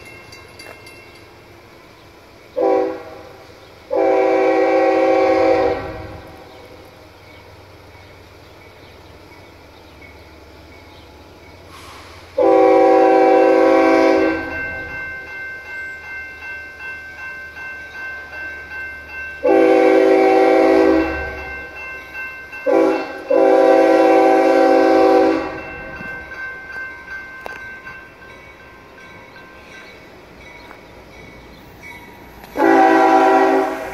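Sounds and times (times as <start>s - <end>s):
crossing bell ringing: 0.0s - 11.8s, 12.4s - 33.9s
locomotive air horn blasts: 2.6s - 6.5s, 11.7s - 14.6s, 19.4s - 21.4s, 22.6s - 25.7s, 32.6s - 33.9s.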